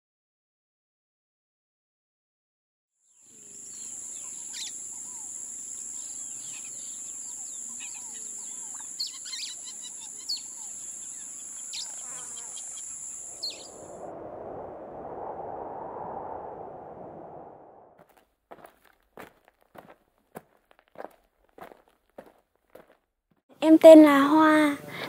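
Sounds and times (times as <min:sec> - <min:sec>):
high-pitched insect drone: 0:03.2 - 0:14.0
birds chirping and calling: 0:03.7 - 0:13.8
rushing noise: 0:13.6 - 0:18.0.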